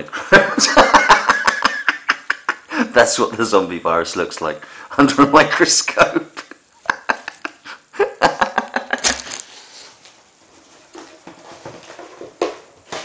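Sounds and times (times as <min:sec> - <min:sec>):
rummaging in a box: 0:09.0 - 0:09.5.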